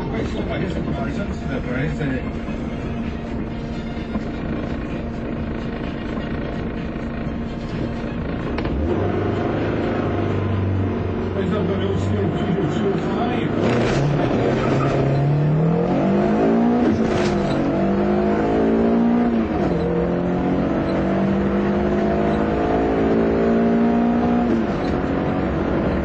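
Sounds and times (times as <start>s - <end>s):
car engine accelerating hard: 0.0s - 26.0s.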